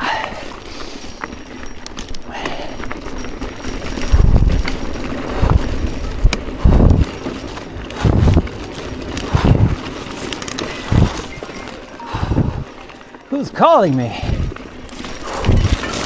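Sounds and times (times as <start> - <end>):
tyres rolling through brush: 0.0 - 16.0
bike low thumps: 0.6 - 13.1.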